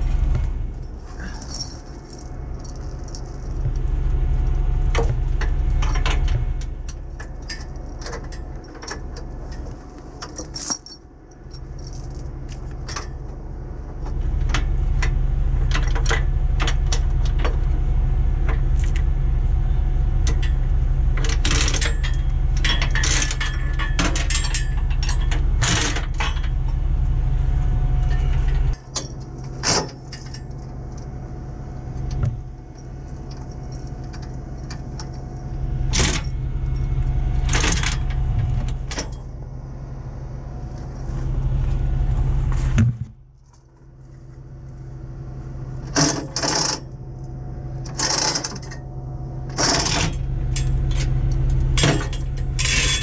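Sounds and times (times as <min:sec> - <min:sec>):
low engine rumble: 0:00.0 - 0:53.0
chains clanking against steel frame: 0:00.8 - 0:03.6, 0:05.4 - 0:13.3, 0:20.2 - 0:26.8, 0:28.0 - 0:31.2, 0:45.8 - 0:47.0, 0:47.8 - 0:53.0.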